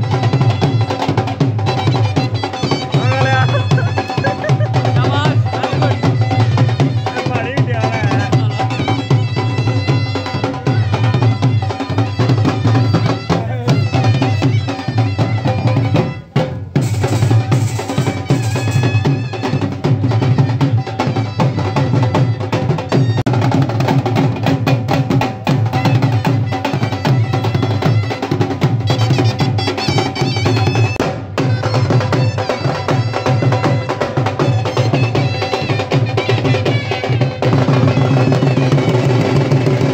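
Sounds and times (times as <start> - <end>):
dhol drums beating: 0.0 - 39.9.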